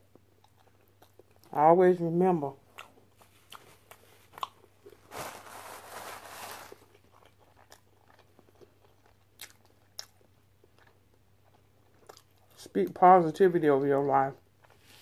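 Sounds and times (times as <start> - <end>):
chewing: 0.0 - 1.5, 2.7 - 5.0, 6.8 - 12.6
person crunching fried food: 2.7 - 5.1, 6.0 - 12.6.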